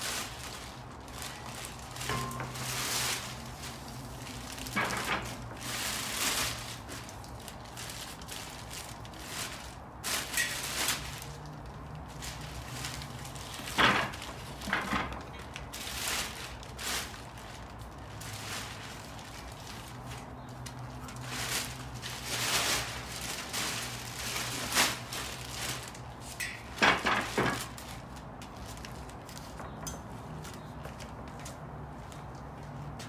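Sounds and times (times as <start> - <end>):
packaging rustling and crackling: 0.0 - 31.6.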